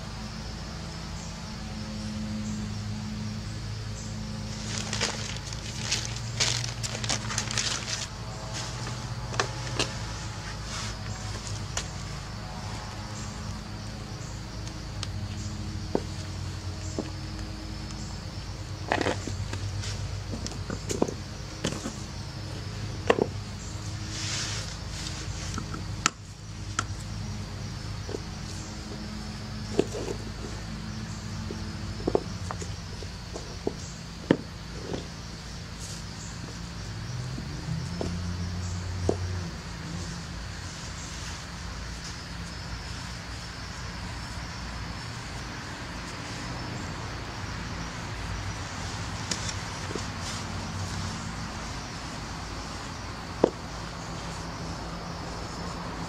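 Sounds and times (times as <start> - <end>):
distant road traffic rumble: 0.0 - 56.0
shoes knocking on concrete: 15.8 - 16.3, 53.4 - 53.7.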